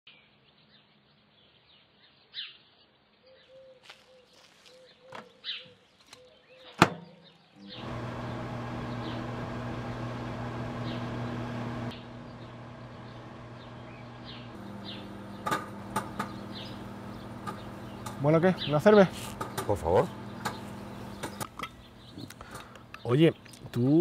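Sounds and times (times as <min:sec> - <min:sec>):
birds chirping: 0:00.1 - 0:24.0
microwave electrical hum: 0:07.7 - 0:23.0
microwave door shutting click: 0:15.1 - 0:18.2.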